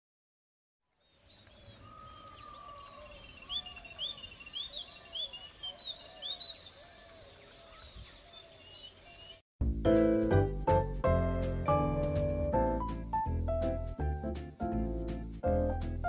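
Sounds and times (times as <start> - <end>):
birds calling: 1.1 - 9.4
quick repeated bird chirps: 1.1 - 9.4.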